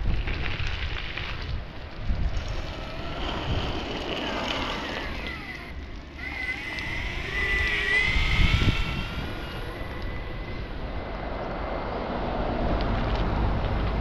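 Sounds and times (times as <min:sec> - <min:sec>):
wind rumble on microphone: 0:00.0 - 0:14.0
electric skateboard motor whining: 0:02.3 - 0:11.0.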